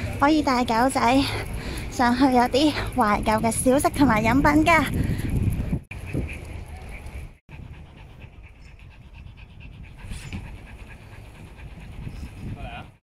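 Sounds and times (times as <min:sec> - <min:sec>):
wind rumble on microphone: 0:01.4 - 0:13.0
small dog panting: 0:06.0 - 0:13.0.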